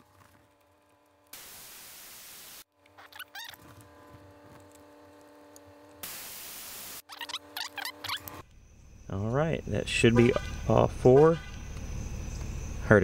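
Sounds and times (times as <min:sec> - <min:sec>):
air hissing from tire valve: 0:06.0 - 0:07.0.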